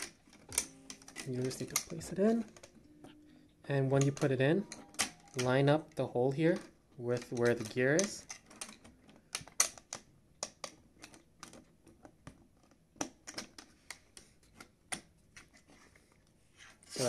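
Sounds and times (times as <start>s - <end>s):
hard plastic parts clicking: 0.0s - 2.8s, 3.9s - 15.7s.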